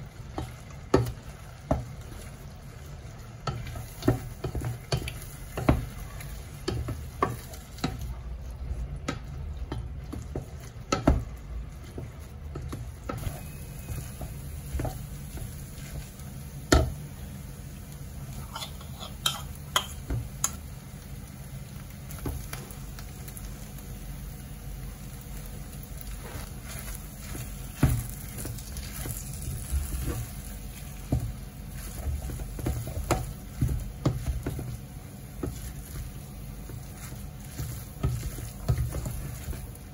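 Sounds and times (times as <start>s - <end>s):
faint simmering sizzle: 0.0s - 39.9s
spatula knocking against pan: 9.0s - 15.5s, 16.7s - 17.0s, 32.0s - 35.8s
spatula scraping saucepan: 18.3s - 19.9s.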